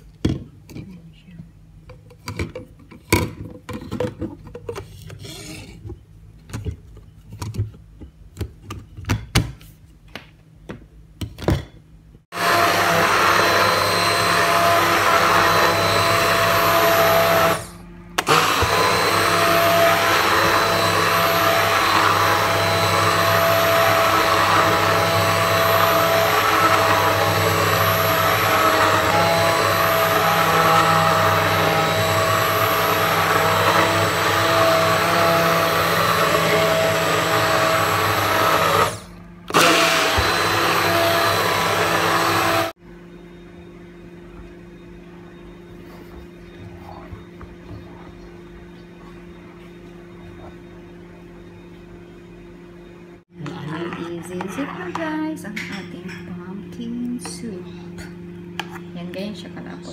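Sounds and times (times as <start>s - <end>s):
stick blender motor running: 12.3s - 42.8s, 53.4s - 55.3s.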